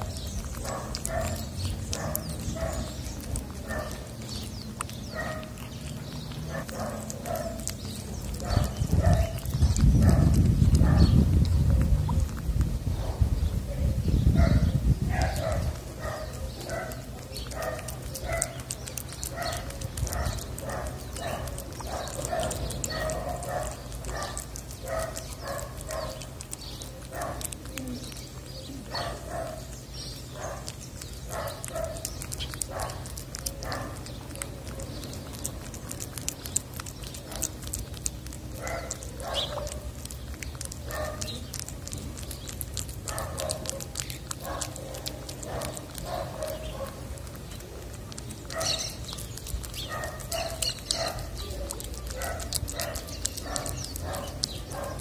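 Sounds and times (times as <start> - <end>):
cat chewing and licking: 0.0 - 55.0.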